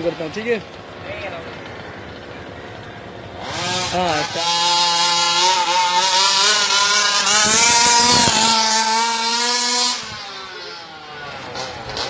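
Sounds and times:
toy car engine: 0:03.3 - 0:12.0.

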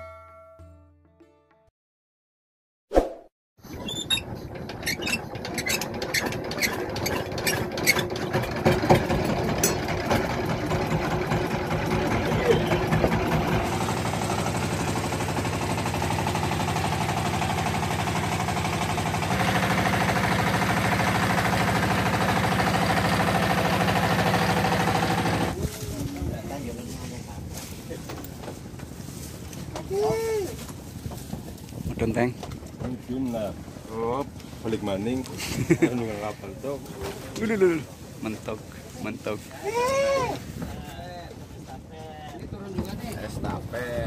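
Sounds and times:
boat engine running: 0:04.1 - 0:25.6.

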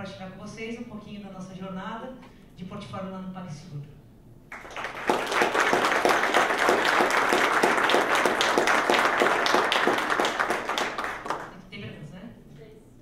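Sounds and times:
audience applauding: 0:04.5 - 0:11.6.

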